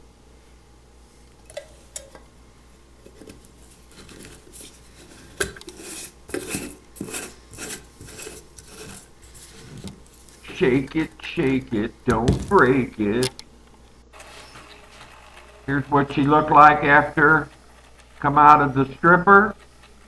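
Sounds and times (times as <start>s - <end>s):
metal lid scraping on glass jar: 5.3s - 9.1s.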